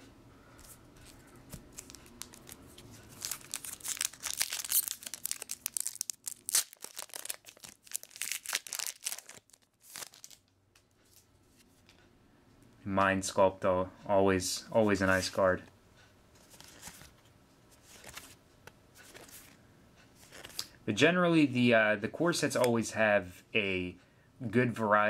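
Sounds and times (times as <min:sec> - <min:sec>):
foil wrapper crackling and ripping: 0:01.7 - 0:10.4.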